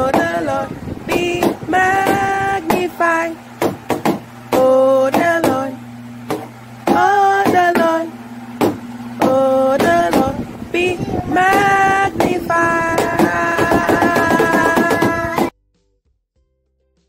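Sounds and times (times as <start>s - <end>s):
child singing: 0.0s - 3.4s, 6.9s - 8.1s, 9.2s - 15.5s.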